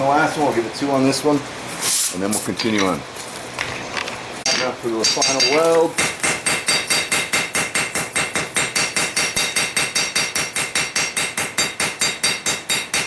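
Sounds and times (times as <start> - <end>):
hammer striking metal on anvil: 4.5 - 13.0.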